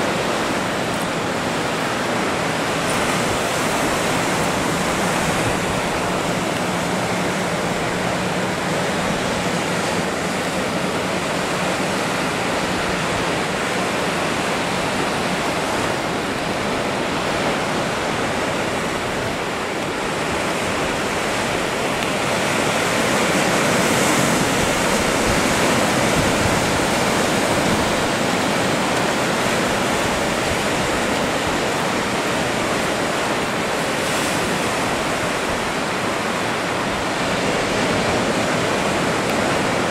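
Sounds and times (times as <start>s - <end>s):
ocean surf breaking: 0.0s - 39.9s.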